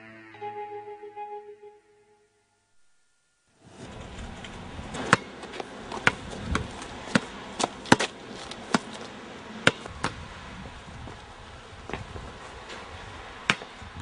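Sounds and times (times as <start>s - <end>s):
background hiss: 0.0s - 5.9s
basketball bouncing on court: 5.1s - 8.1s, 9.6s - 10.2s.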